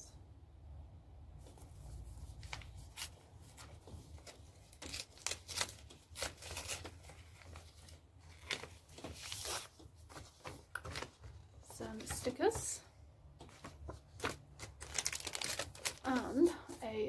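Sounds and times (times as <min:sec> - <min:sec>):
plastic wrapping crackling and tearing: 0:02.4 - 0:09.8, 0:14.1 - 0:16.7.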